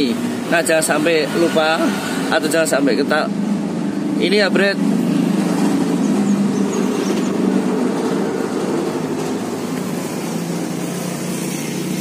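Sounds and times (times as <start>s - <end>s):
vehicle engine idling: 2.4s - 12.0s.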